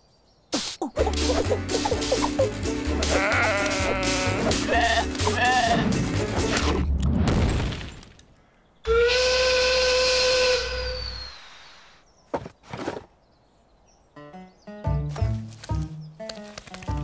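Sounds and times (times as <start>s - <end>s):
hissing noise: 0.5s - 4.6s
loud steady whistle: 8.9s - 11.5s.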